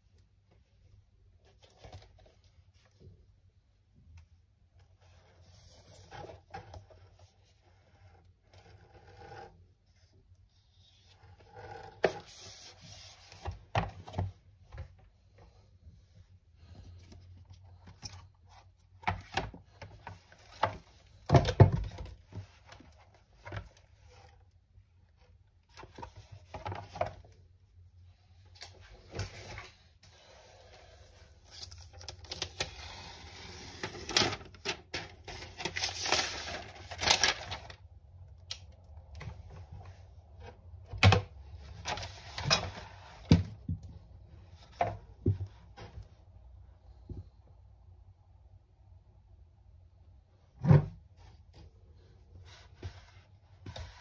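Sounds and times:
plastic wrap crinkling: 33.8s - 37.8s.

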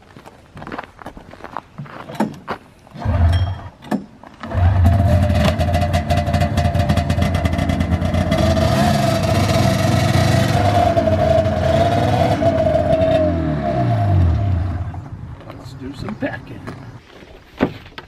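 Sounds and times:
snowmobile engine starting: 2.9s - 3.7s, 4.4s - 15.2s.

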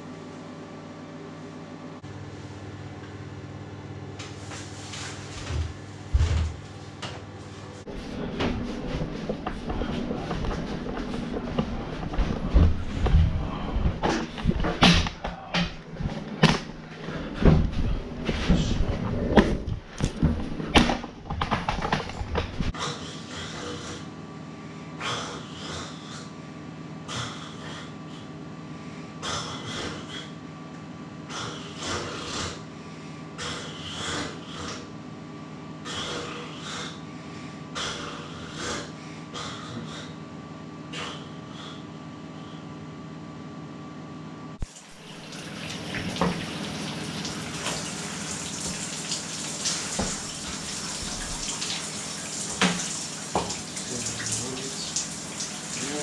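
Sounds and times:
low hum: 0.0s - 22.8s
shower water splashing on tiles: 44.6s - 56.0s
water dripping: 44.6s - 56.0s.

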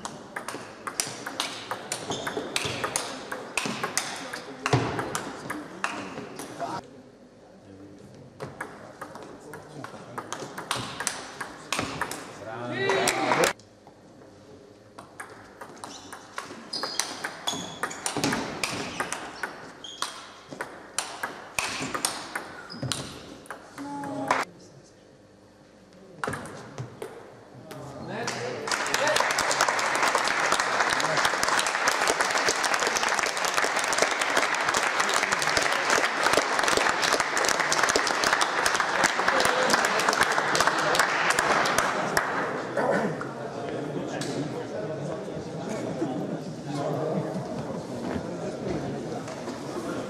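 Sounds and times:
ping pong ball clicking: 0.4s - 6.5s, 8.6s - 12.3s, 15.1s - 23.9s
audience applauding: 28.6s - 42.5s.

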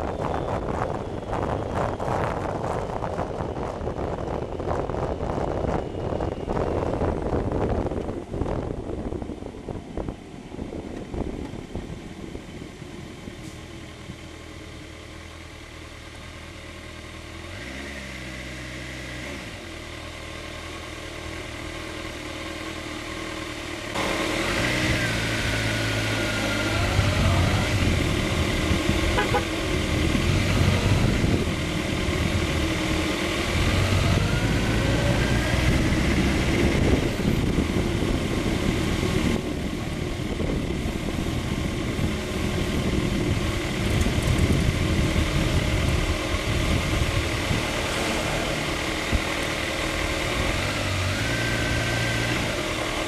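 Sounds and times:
wind buffeting microphone: 0.0s - 13.4s, 26.8s - 47.8s
motorcycle engine running: 0.0s - 53.0s
passing traffic: 0.0s - 53.0s.

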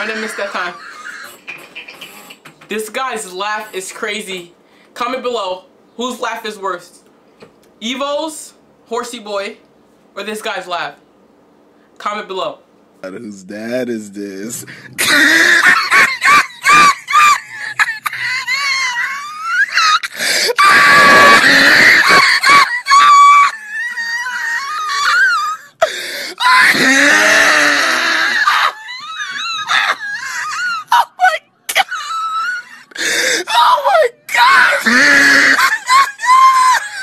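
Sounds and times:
man laughing high-pitched: 0.0s - 2.4s, 14.9s - 25.6s.

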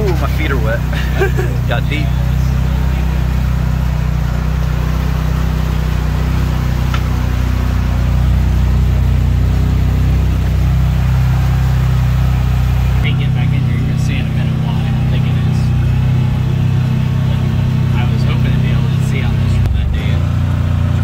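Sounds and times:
off-road vehicle engine running: 0.0s - 21.0s
water washing around vehicle: 0.0s - 21.0s.

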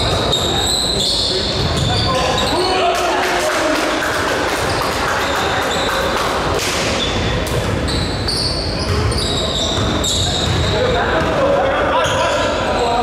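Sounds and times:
shoe squeaks: 0.0s - 2.7s, 4.7s - 6.1s, 6.9s - 10.9s, 12.0s - 13.0s
echoing hall noise: 0.0s - 13.0s.

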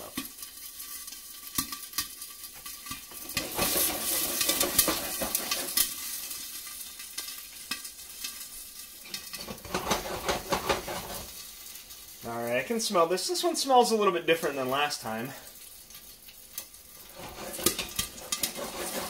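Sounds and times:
popcorn sizzling in hot oil: 0.0s - 19.0s
popcorn popping thumps: 1.5s - 6.0s, 9.2s - 11.3s.

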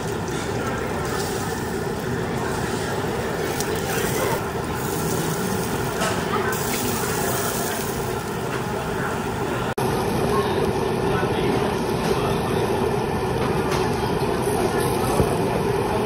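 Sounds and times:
gas grill hiss and hum: 0.0s - 16.0s
beef sizzling on a grate: 0.1s - 9.2s.

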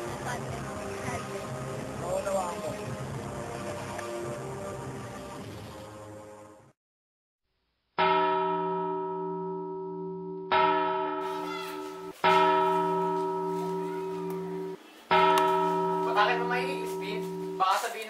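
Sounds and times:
church bell ringing: 8.0s - 18.0s.

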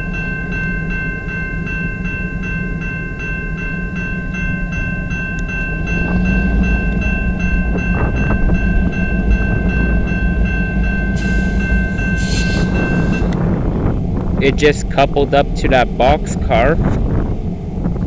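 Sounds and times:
railroad crossing bell ringing: 0.0s - 17.8s
diesel locomotives rumbling: 0.0s - 18.0s
air hiss bursts: 11.2s - 13.4s.

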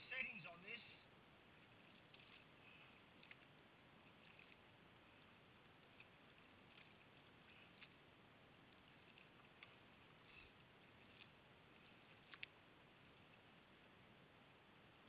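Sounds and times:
faint steady hiss: 0.0s - 15.0s
soft ticks: 12.2s - 12.6s.

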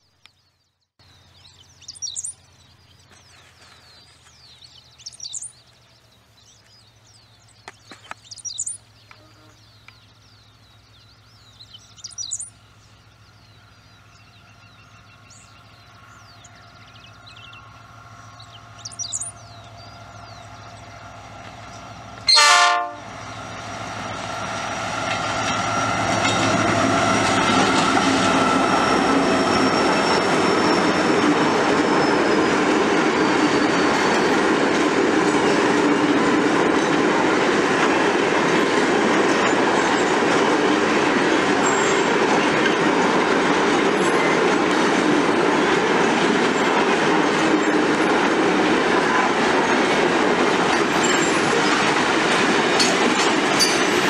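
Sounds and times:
freight train rumbling past: 1.0s - 54.0s
wheels clickety-clack on rail joints: 1.1s - 54.0s
locomotive horn blast: 9.1s - 9.6s, 22.2s - 23.2s.

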